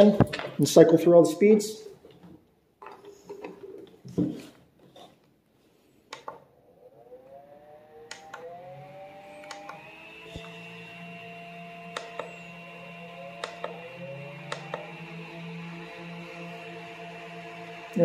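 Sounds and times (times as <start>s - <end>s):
electric fan motors whirring: 6.1s - 18.0s
fan speed button clicks: 8.1s - 8.5s, 9.4s - 9.8s, 12.0s - 12.3s, 13.4s - 13.8s.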